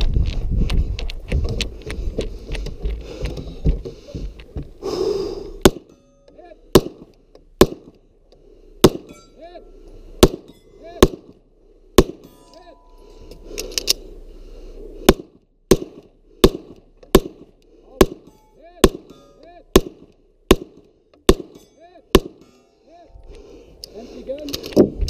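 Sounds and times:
pistol shots: 0:05.6 - 0:05.9, 0:06.7 - 0:07.9, 0:08.8 - 0:09.1, 0:10.2 - 0:11.4, 0:12.0 - 0:12.3, 0:15.1 - 0:22.4.

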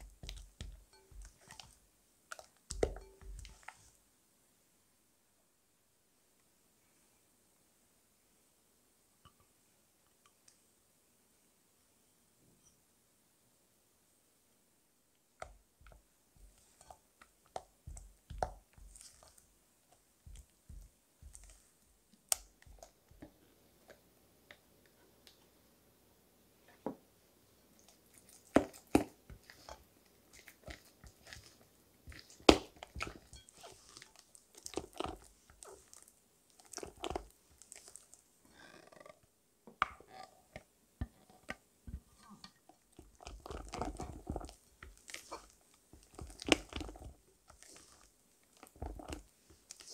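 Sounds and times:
spatula scraping glass bowl: 0:00.2 - 0:01.8, 0:16.4 - 0:17.0, 0:29.4 - 0:36.0
sticky squelches: 0:15.4 - 0:23.3, 0:27.8 - 0:38.2.

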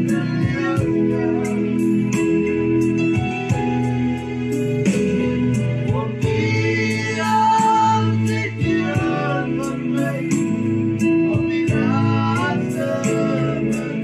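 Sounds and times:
two men singing gospel song: 0:00.0 - 0:02.6, 0:05.8 - 0:14.0
electronic keyboard chords: 0:00.0 - 0:14.0.

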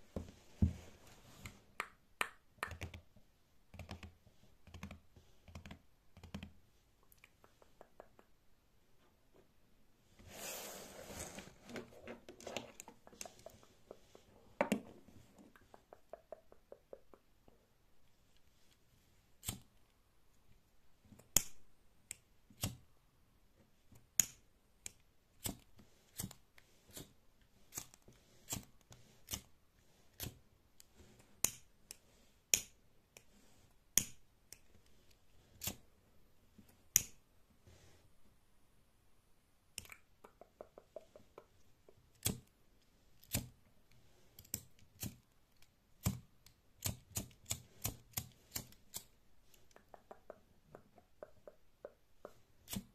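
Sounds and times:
hands rustling: 0:10.2 - 0:16.8.

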